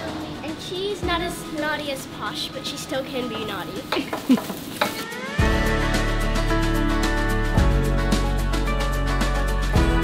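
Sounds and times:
music with chords and beat: 5.0 - 10.0.

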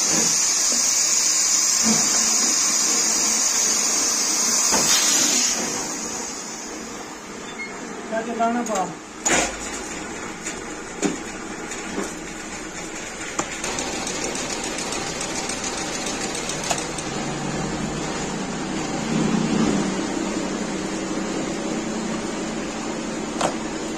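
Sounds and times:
machine running mechanically: 9.3 - 23.9.

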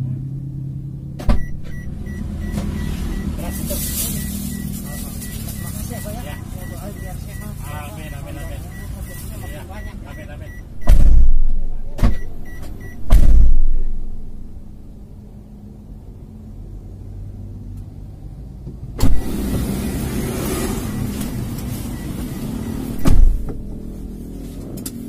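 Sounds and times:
car engine idling: 0.0 - 25.0
rush of outside noise: 1.1 - 25.0
heavy thump: 10.7 - 14.3, 23.0 - 23.8.

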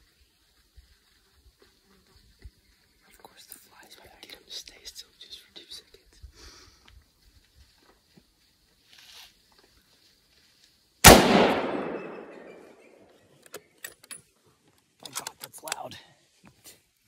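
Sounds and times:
rifle shot: 11.0 - 12.8.

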